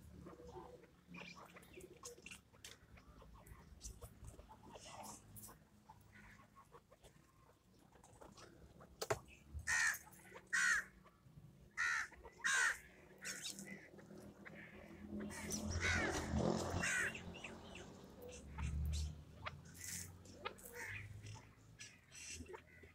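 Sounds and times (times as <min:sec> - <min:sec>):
partridges calling: 0:11.7 - 0:22.9.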